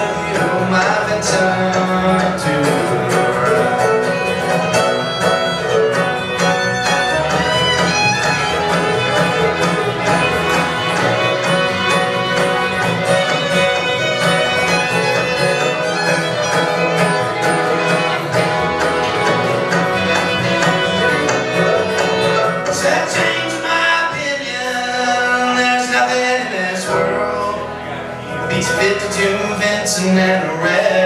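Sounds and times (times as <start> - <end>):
bluegrass string band: 0.0 - 31.0
fiddle lead: 0.0 - 31.0.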